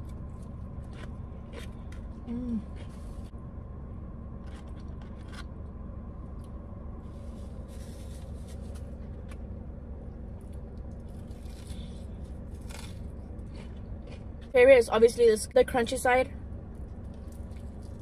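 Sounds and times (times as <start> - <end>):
crispy chicken crust crackling: 10.4 - 14.3
crunchy bite: 10.5 - 14.3.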